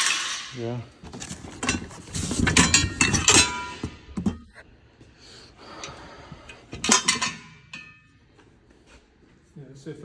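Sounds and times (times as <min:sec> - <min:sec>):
steel part clinking and clanking: 0:01.2 - 0:04.5, 0:06.5 - 0:08.2.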